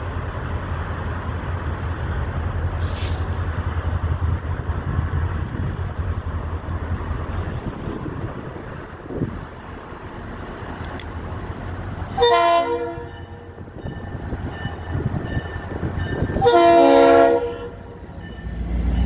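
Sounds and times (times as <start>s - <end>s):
diesel locomotive rumbling: 0.0s - 19.0s
short hiss: 2.7s - 3.5s.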